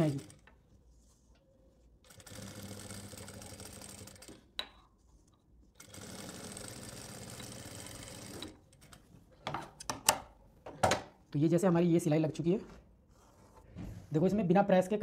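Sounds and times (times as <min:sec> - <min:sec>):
sewing machine stitching: 0:00.0 - 0:00.4, 0:02.1 - 0:04.4, 0:05.8 - 0:09.0.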